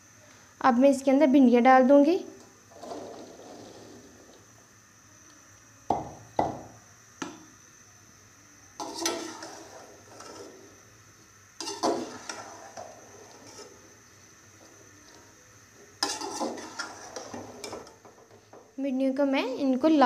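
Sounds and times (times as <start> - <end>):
spoon scraping through okra: 8.8 - 10.8, 11.6 - 14.2, 16.0 - 17.9.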